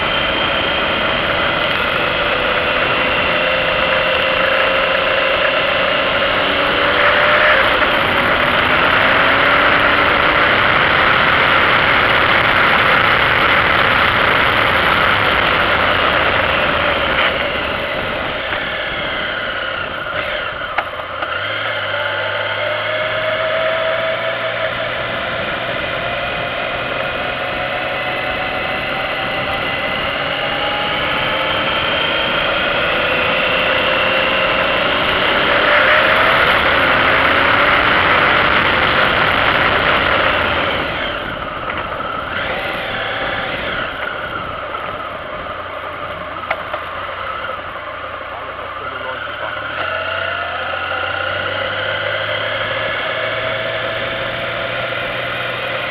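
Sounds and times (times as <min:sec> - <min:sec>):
wind rush: 0:00.0 - 0:21.1, 0:24.8 - 0:46.5
motorcycle engine running: 0:00.0 - 0:55.9.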